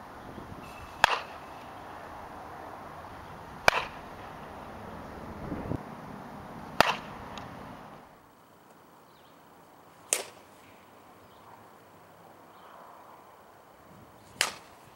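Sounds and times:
bat cracking ball: 0.6 - 1.9, 3.6 - 4.4, 6.8 - 7.6, 10.1 - 10.5, 14.3 - 14.9.

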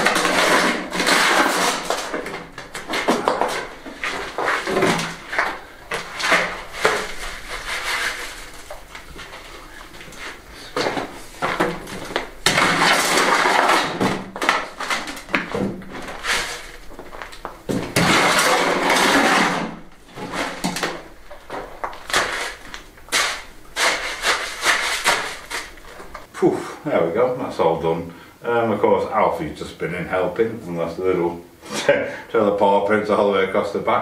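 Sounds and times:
shovel scraping wet mix: 0.0 - 9.5, 11.8 - 26.1.

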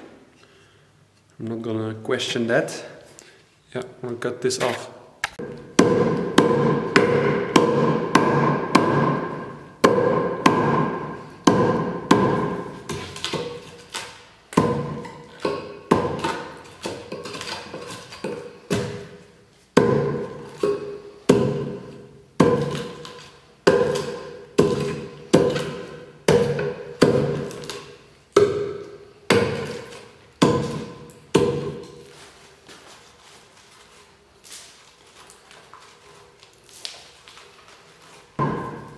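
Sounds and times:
axe strikes on wood ringing: 5.4 - 13.6, 14.6 - 17.4, 18.2 - 19.2, 19.8 - 32.0, 38.4 - 38.9.

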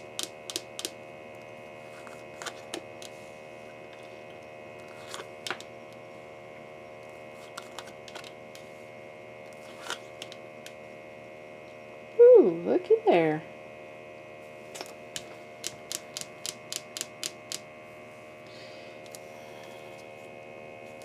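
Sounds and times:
electrical hum: 0.0 - 21.0.

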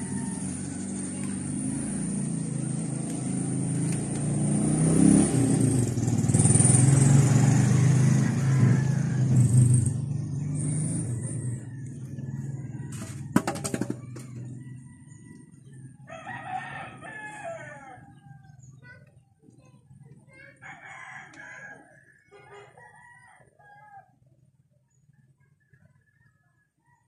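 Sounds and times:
rooster crowing: 0.0 - 0.9, 7.6 - 9.5, 10.7 - 13.4, 16.1 - 18.4, 20.6 - 24.2.

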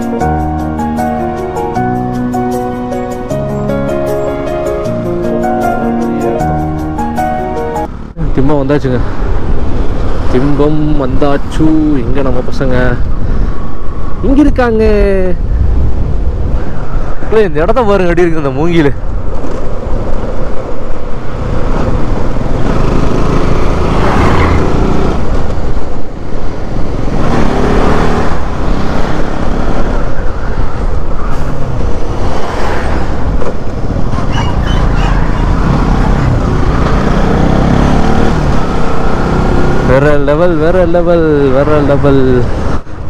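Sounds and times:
road noise rushing: 0.0 - 43.0
traffic passing: 0.0 - 43.0
motorcycle engine revving: 21.1 - 30.0, 31.4 - 40.3.

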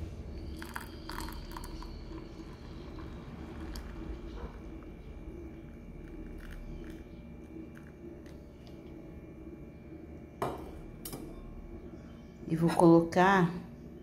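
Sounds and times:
tea pouring into mug: 0.3 - 8.4.

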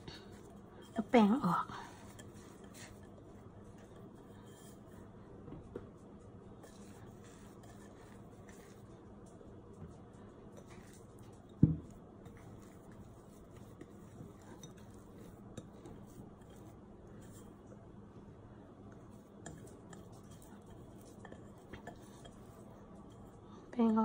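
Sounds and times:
glass bowl knocking on wood: 11.6 - 12.0.

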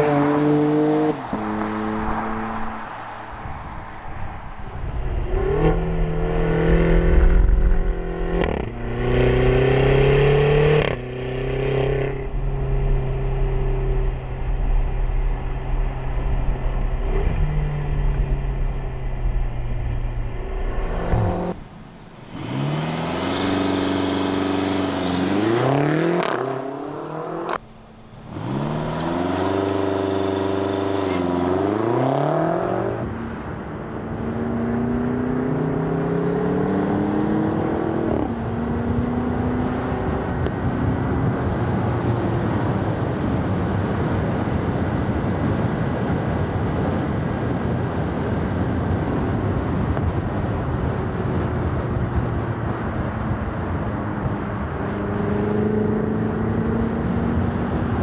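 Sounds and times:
wind noise: 0.0 - 58.0
car engine revving: 5.0 - 42.2.

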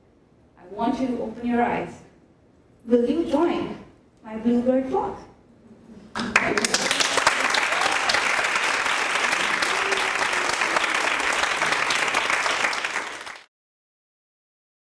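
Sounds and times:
audience applauding: 6.2 - 13.5.

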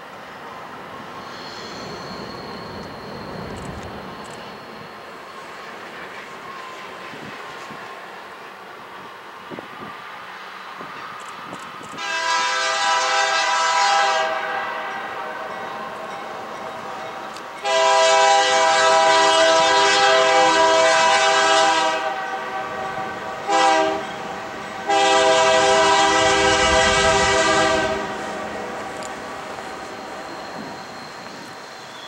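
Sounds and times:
locomotive air horn blasts: 12.0 - 15.5, 17.6 - 29.0.

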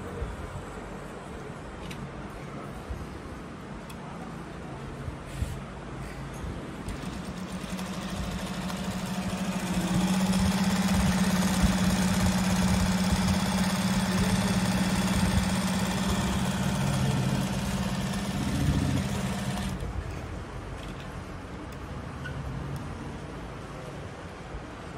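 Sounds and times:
sewing machine humming: 6.9 - 20.0.

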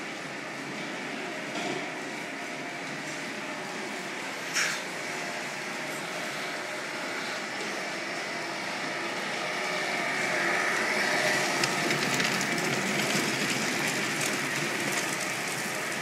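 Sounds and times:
wheels rolling on concrete: 7.3 - 16.0.

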